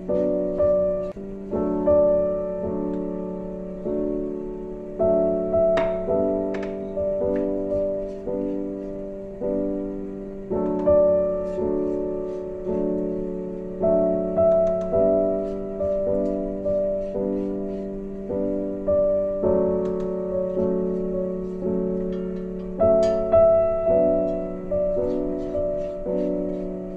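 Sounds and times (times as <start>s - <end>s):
gentle piano music: 0.0s - 26.9s.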